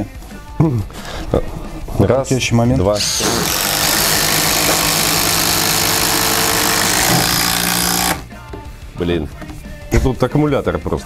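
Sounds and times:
impact driver hammering: 3.0 - 8.3.

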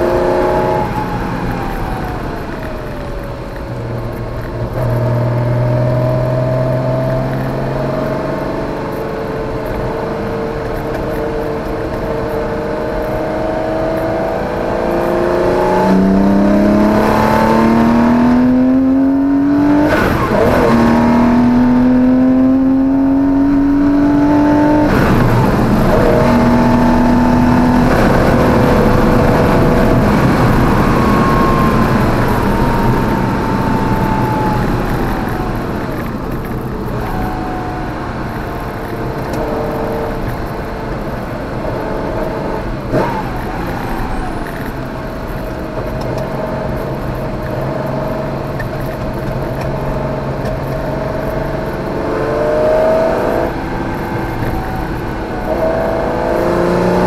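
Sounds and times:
car engine revving through gears: 0.0 - 57.0.

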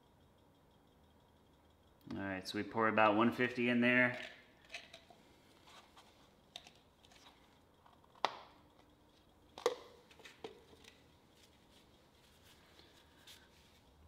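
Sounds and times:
items knocking and clicking: 9.5 - 11.0.

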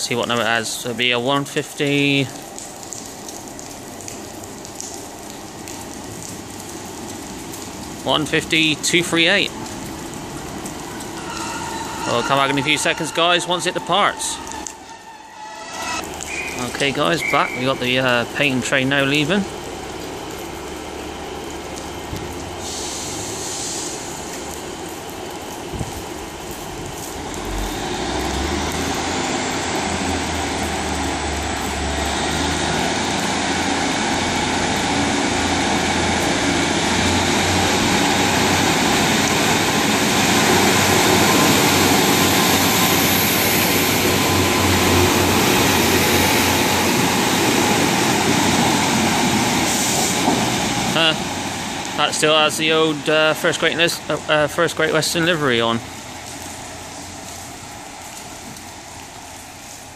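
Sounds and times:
diesel train engines revving: 6.9 - 59.4
rising whine: 11.0 - 17.6.

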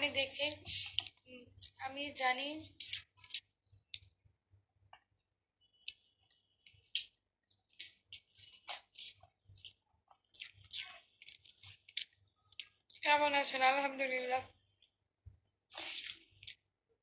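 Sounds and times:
person chewing food: 2.7 - 4.2, 4.9 - 13.6, 14.5 - 16.8.

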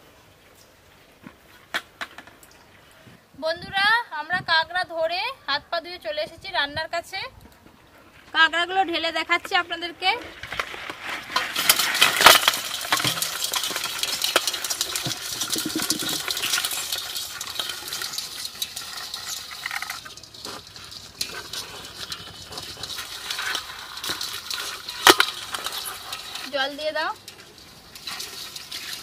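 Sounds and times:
crabs scratching on metal pot: 8.4 - 29.0
crabs clattering into pot: 10.3 - 29.0.

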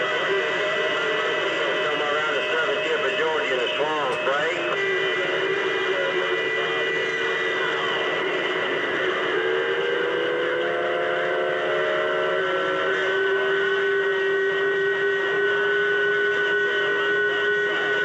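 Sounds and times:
radio static hiss: 0.0 - 9.2
steady whistling radio tones: 0.0 - 18.0.

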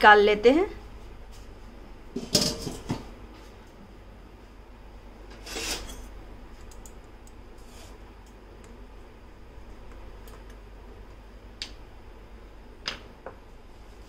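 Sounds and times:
metal utensil scraping: 5.3 - 6.1.

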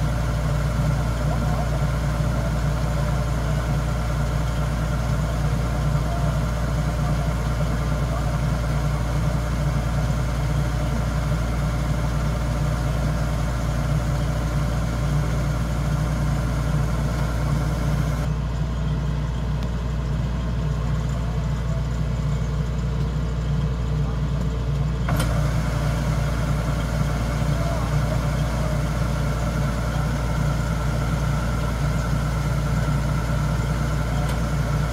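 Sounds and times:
diesel engine running: 0.0 - 34.9.

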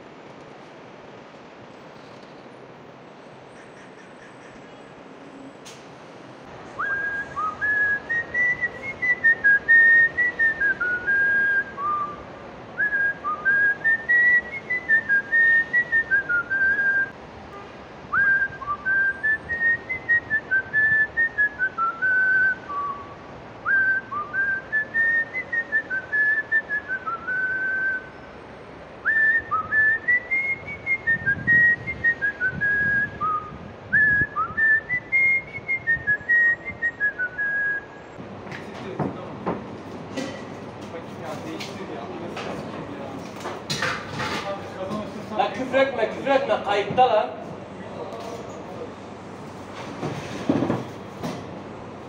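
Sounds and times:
man whistling a tune: 6.8 - 12.2, 12.8 - 17.2, 18.1 - 28.2, 29.0 - 38.0.

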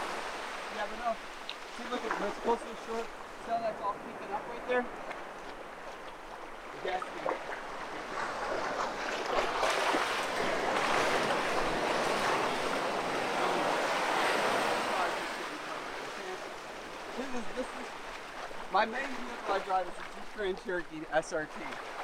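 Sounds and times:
ocean surf washing in: 6.4 - 20.5.

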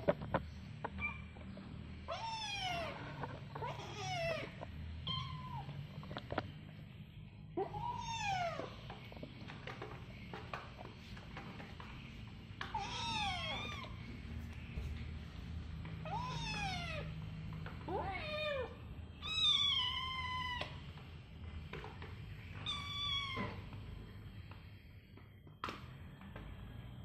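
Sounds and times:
kitten meowing: 2.0 - 6.0, 12.7 - 14.0, 16.0 - 17.1.

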